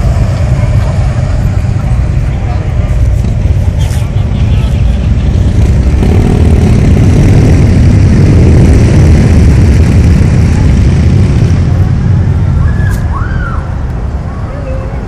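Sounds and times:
vehicles passing rumble: 0.0 - 15.0.

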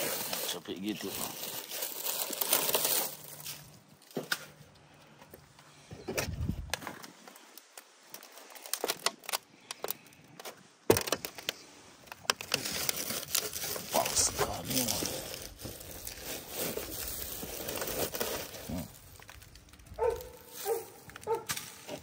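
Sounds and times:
dry leaves crackling: 0.0 - 4.2, 12.4 - 22.0.

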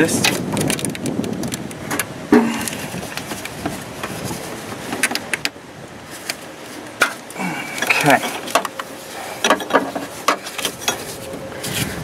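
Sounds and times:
rustling: 2.4 - 5.3, 6.0 - 12.0.

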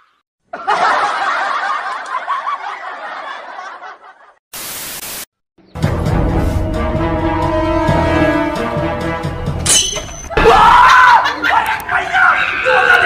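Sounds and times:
group of people laughing: 0.5 - 4.4, 10.7 - 13.0
tv static hiss: 4.6 - 5.3
music: 5.6 - 10.4.

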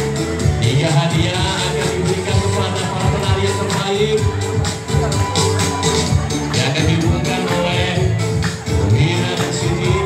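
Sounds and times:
upbeat music with bass beat: 0.0 - 10.0.

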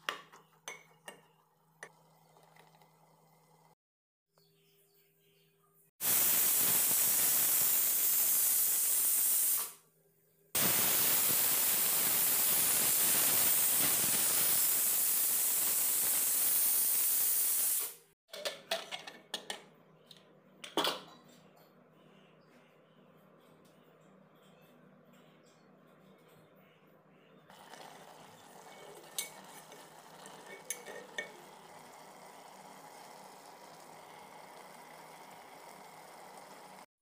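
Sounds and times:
pressure cooker whistling steam hiss: 6.0 - 9.8, 10.6 - 18.0, 27.5 - 36.9.

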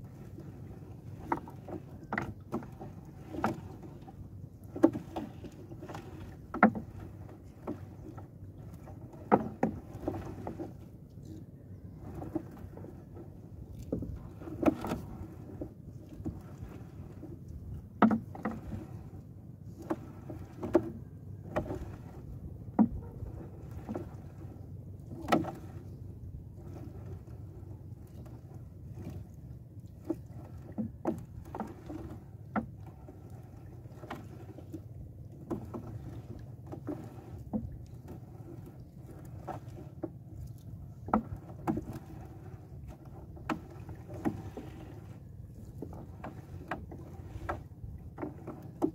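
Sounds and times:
net knocking against wooden boat: 4.7 - 7.8, 9.2 - 10.7, 17.9 - 18.9, 22.7 - 23.2, 25.1 - 25.7, 30.0 - 32.9, 41.0 - 45.0, 45.8 - 48.9.

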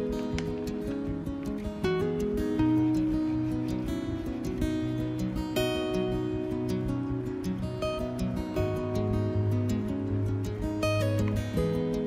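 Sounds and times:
acoustic guitar music: 0.0 - 12.0.

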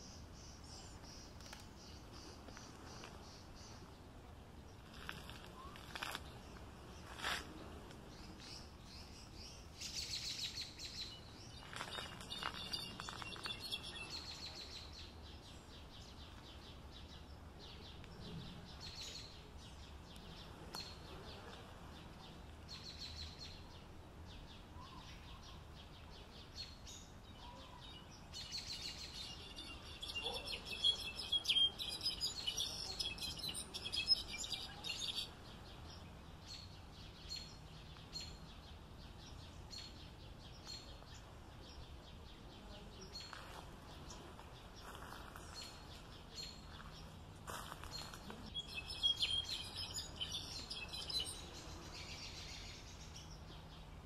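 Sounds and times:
faint background hiss: 0.0 - 54.0
songbird twittering: 8.1 - 17.9, 26.3 - 43.4, 44.0 - 53.8.

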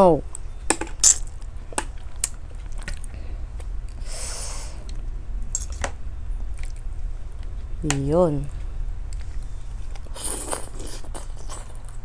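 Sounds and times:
steady low hum: 0.0 - 12.0
breath-like hiss: 4.0 - 4.8.

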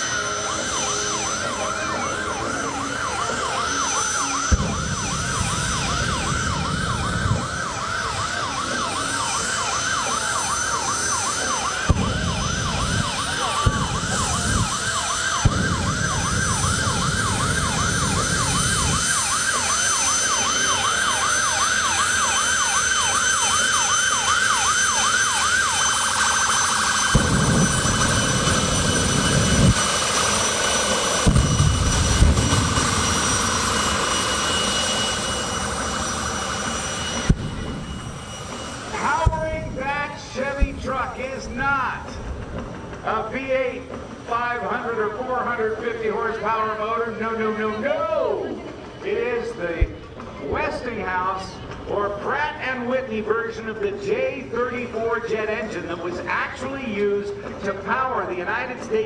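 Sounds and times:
siren yelping: 0.0 - 42.2
jet engine rumbling blast: 0.0 - 44.8
jet engine whine: 0.0 - 59.0.

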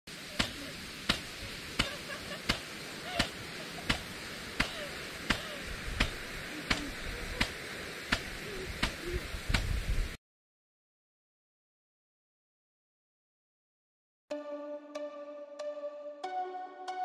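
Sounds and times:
hiss of water spray: 0.1 - 10.2
impact sprinkler ticking: 0.3 - 9.8.

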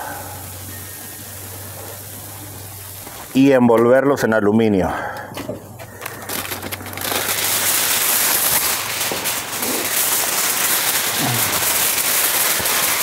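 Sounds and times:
aluminium foil crinkling: 5.2 - 13.0.

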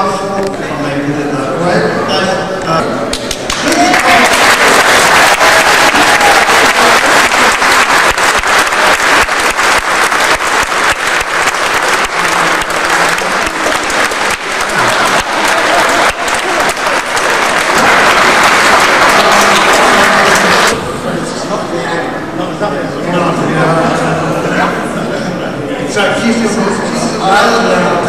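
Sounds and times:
large audience applauding: 3.1 - 20.8.

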